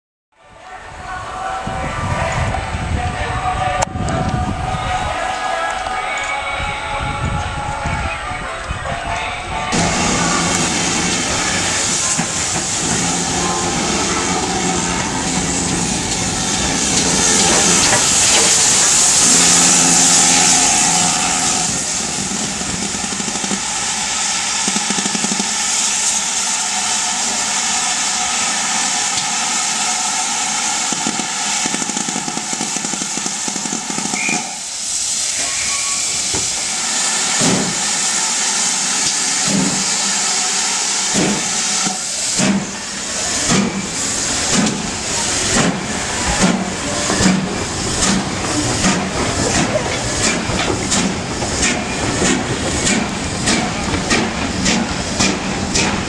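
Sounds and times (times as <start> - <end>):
steam locomotive blowing off steam: 0.9 - 56.0
steam hissing around cylinders: 7.1 - 56.0
locomotive exhaust beats: 41.1 - 56.0.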